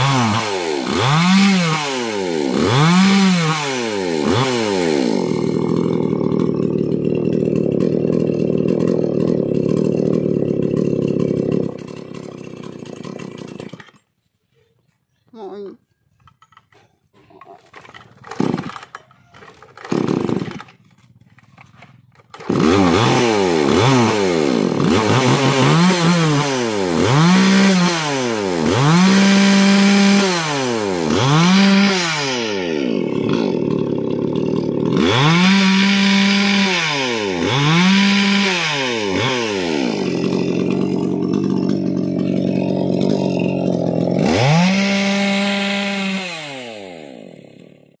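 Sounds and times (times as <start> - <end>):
chainsaw revving and idling: 0.0 - 14.1, 17.8 - 48.0.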